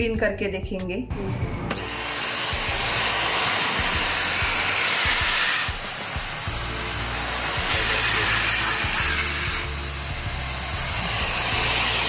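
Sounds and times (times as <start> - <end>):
handheld vacuum cleaner running: 1.7 - 12.0.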